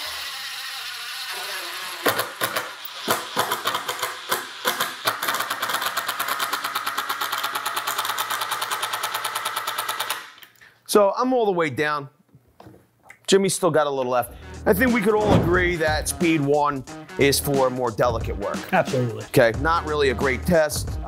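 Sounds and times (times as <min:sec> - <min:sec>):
drill motors spinning screws: 0:00.0 - 0:10.3.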